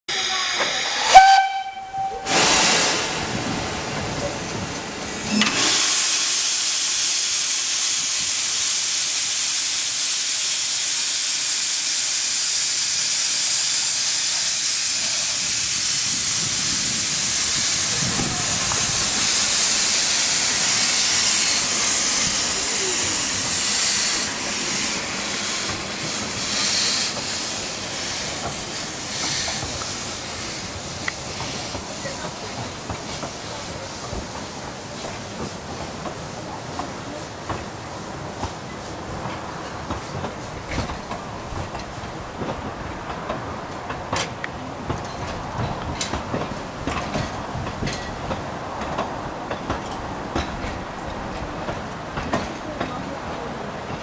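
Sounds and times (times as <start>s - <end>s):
steam locomotive whistle: 0.1s - 3.0s
steam hissing: 0.1s - 41.8s.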